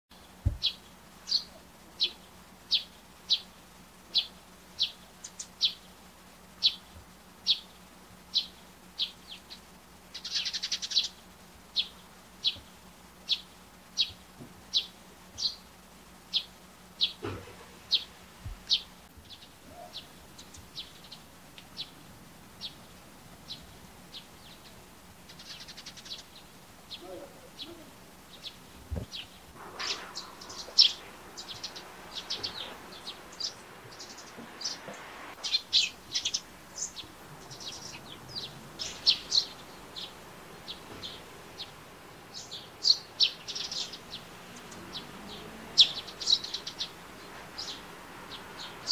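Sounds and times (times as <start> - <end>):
sparrow chirping: 0.1 - 48.9
sparrow chattering: 8.3 - 11.2, 35.4 - 44.0.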